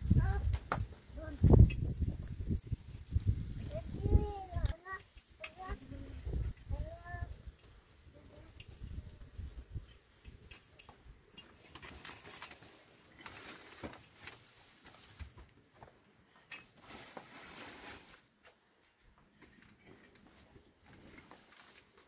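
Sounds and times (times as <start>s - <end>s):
cloth rustling: 16.7s - 18.4s.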